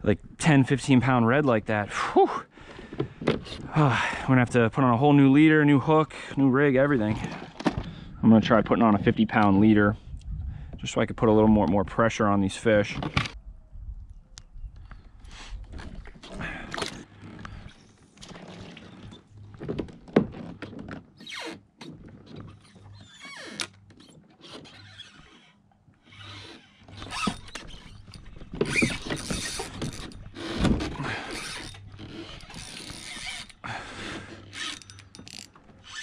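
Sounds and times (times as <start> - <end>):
fishing reel clicking and rattling: 31.3 - 33.6, 34.4 - 36.0.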